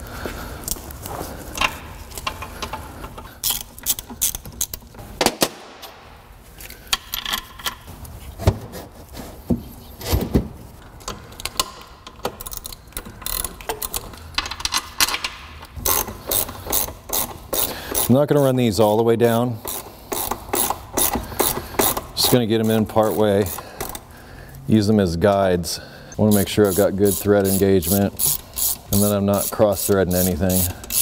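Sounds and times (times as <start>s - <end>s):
hand ratchet clicking: 3.4s - 4.8s, 11.3s - 18.1s, 19.6s - 24.0s, 26.3s - 31.0s.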